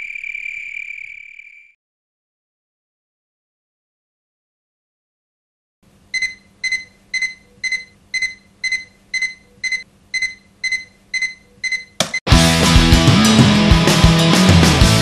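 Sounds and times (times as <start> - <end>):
alarm clock beeping: 6.2 - 12.0
loud rock music: 12.3 - 15.0.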